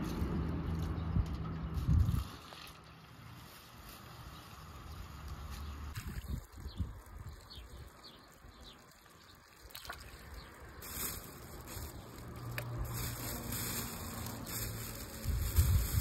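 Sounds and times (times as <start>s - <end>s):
herbs handled in metal basin: 1.7s - 16.0s
plastic bag rustling: 1.8s - 7.9s, 10.1s - 16.0s.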